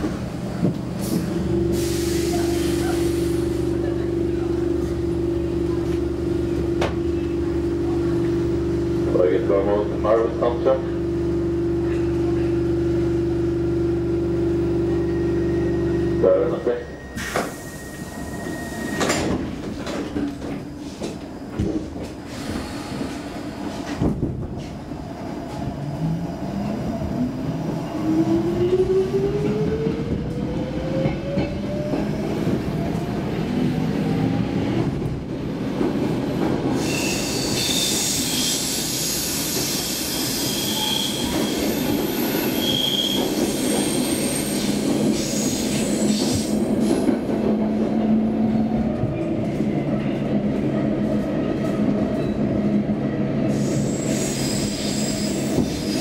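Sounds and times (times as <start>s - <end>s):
train rumbling through tunnel: 0.0s - 56.0s
wheels squealing on rails: 14.8s - 19.4s, 36.7s - 47.1s, 53.5s - 56.0s.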